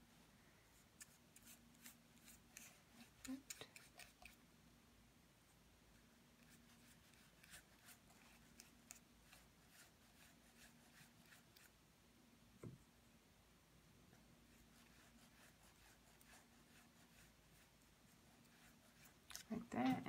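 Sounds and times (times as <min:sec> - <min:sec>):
paintbrush strokes on paper: 0:00.7 - 0:04.4, 0:06.4 - 0:11.8, 0:14.4 - 0:20.0.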